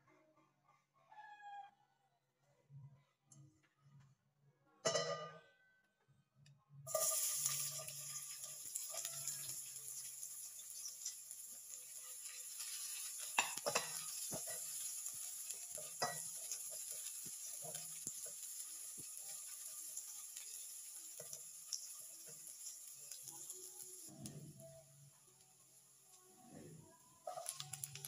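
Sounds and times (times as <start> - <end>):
onions sizzling in oil: 6.9 - 26.1, 27.2 - 28.0.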